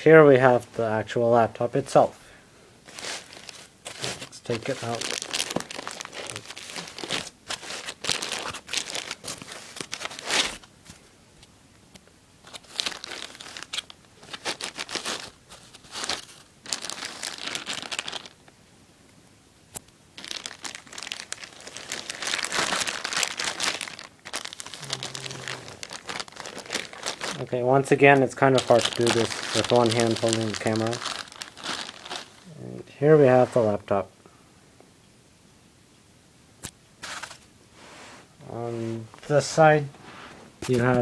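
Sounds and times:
plastic bag crinkling: 2.8 - 10.7, 12.4 - 18.5, 20.2 - 32.5.

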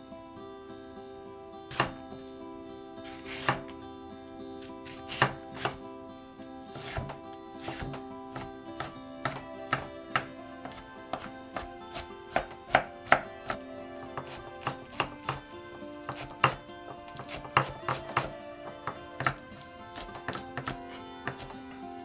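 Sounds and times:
soft background music: 0.0 - 22.0
knife chopping on wooden board: 1.7 - 2.0, 3.1 - 3.7, 4.8 - 5.8, 6.7 - 21.6.

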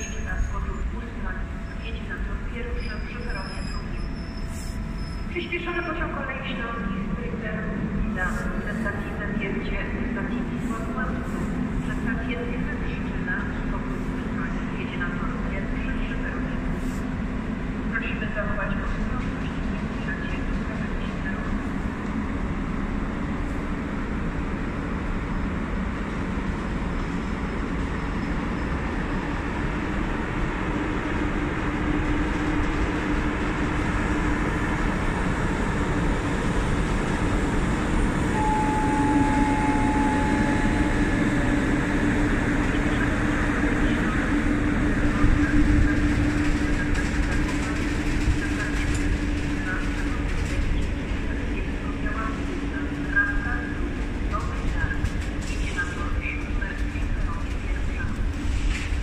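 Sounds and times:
train wheels rumbling on rails: 0.0 - 59.0
brief higher tone: 38.4 - 41.2.

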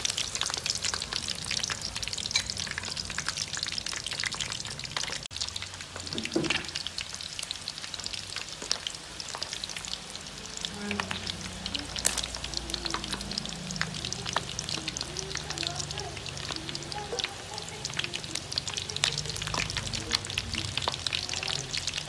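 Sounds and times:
deep-frying oil sizzling and popping: 0.0 - 22.0.

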